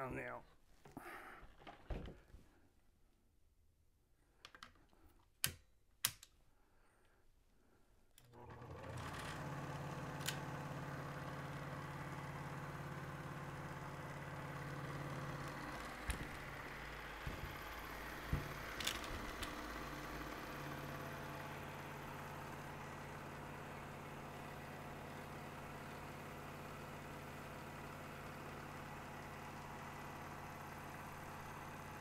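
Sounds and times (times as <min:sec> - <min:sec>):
film projector whirring: 0:08.2 - 0:32.0.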